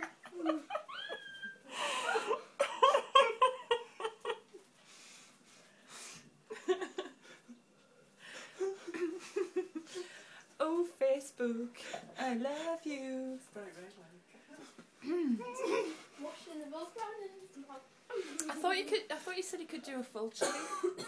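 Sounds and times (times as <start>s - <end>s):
person laughing: 0.0s - 4.5s.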